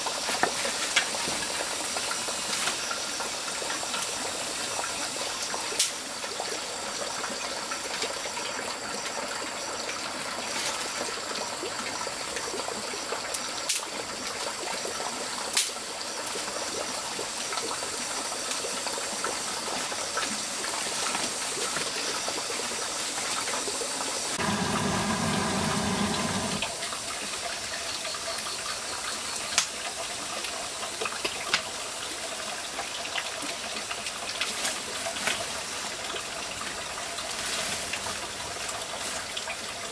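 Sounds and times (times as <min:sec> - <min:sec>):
running water: 0:00.0 - 0:39.9
low hum: 0:24.4 - 0:26.7.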